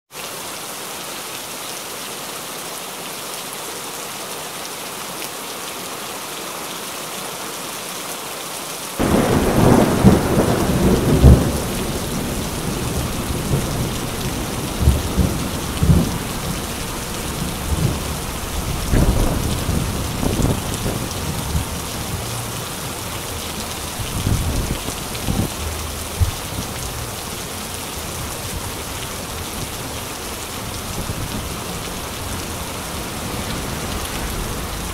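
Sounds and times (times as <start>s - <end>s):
heavy rain hissing: 9.0s - 34.9s
wind gusts buffeting microphone: 9.0s - 34.9s.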